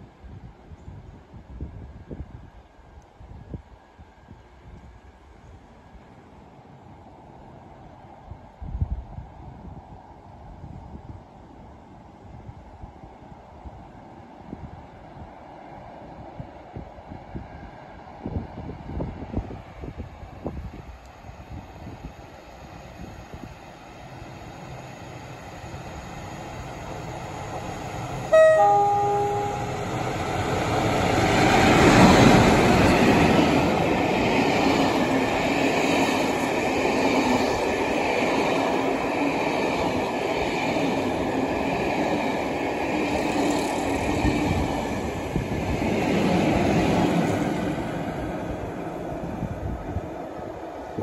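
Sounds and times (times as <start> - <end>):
diesel locomotive engine: 14.0 - 51.0
two-tone train horn: 28.3 - 30.5.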